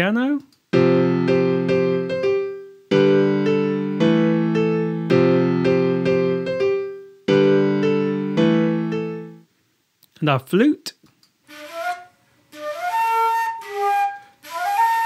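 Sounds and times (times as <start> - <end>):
piano chords and notes: 0.7 - 9.5.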